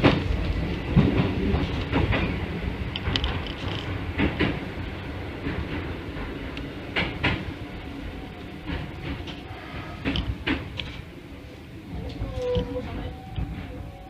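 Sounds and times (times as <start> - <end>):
wheels clicking over rail joints: 0.0 - 11.2
electric train rumble: 0.0 - 14.0.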